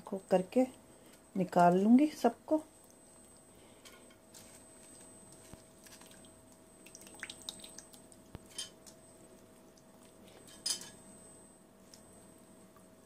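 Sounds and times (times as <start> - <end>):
water splashing in steel bowl: 5.9 - 8.1.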